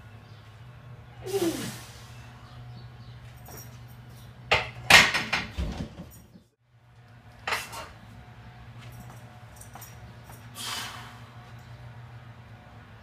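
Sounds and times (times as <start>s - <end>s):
steady low hum: 6.6s - 13.0s.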